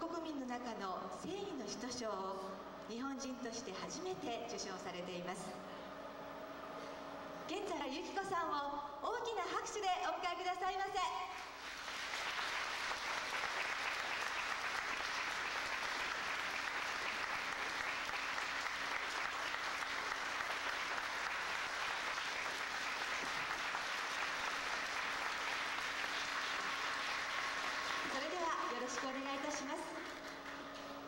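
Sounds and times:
large audience applauding: 11.4s - 31.0s.

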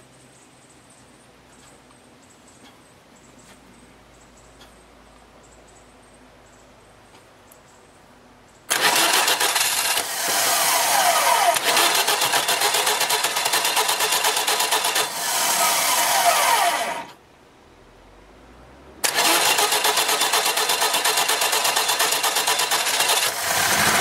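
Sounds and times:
starter motor cranking engine: 8.7s - 17.2s, 19.0s - 24.0s.

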